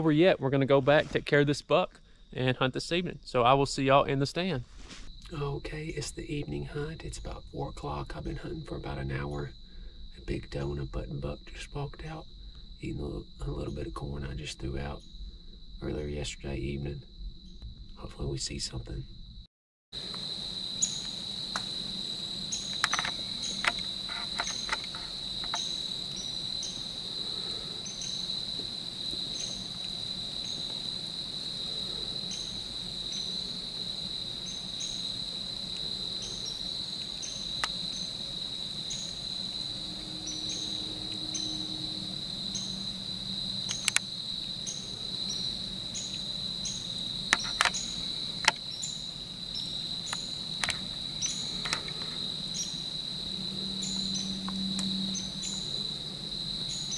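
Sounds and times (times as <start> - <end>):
high-pitched insect chorus: 0.0 - 56.9
sharp clicks: 22.7 - 25.7, 43.6 - 44.1, 47.3 - 47.8, 50.1 - 50.9.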